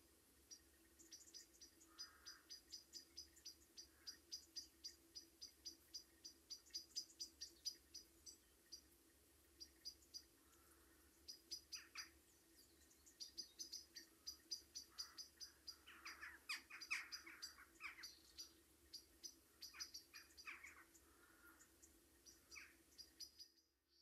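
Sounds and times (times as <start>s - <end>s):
small birds chirping: 0.0s - 24.0s.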